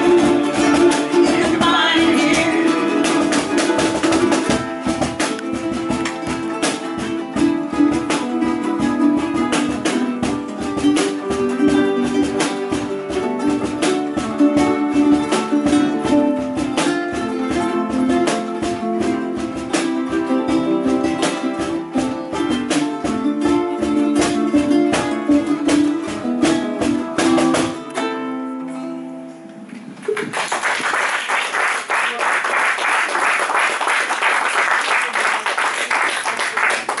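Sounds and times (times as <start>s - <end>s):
ukuleles strumming: 0.0s - 30.2s, 32.1s - 37.0s
applause: 30.0s - 37.0s.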